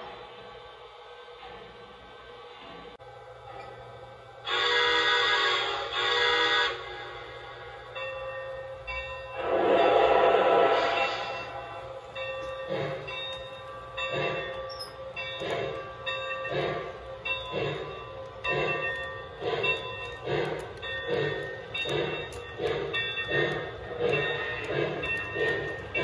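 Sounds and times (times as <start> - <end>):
model steam locomotive chuffing: 0.0 - 26.0.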